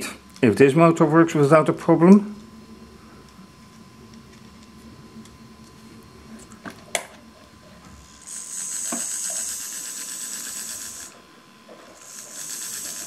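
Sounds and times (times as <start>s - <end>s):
small electric motor whirring: 7.8s - 13.0s.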